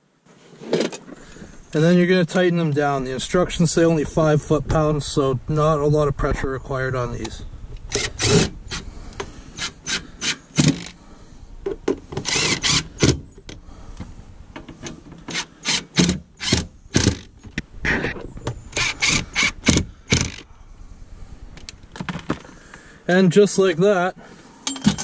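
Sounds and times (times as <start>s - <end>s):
wrench scraping strokes: 7.9s - 11.0s, 12.1s - 13.2s, 15.2s - 20.5s.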